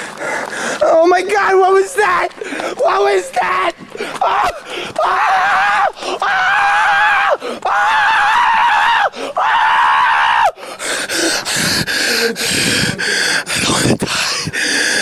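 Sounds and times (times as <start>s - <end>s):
person screaming: 0.8s - 10.5s.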